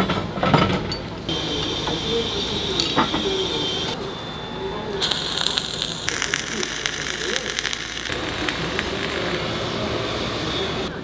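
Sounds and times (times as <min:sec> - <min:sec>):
welding arc crackling and sizzling: 0:05.0 - 0:10.4.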